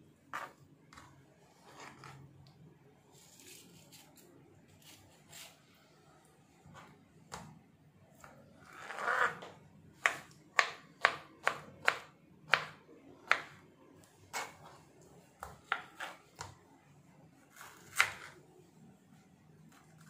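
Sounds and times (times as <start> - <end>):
knife scraping: 1.5 - 2.2, 3.2 - 5.6, 8.6 - 9.5
knife chopping taps: 10.0 - 13.5.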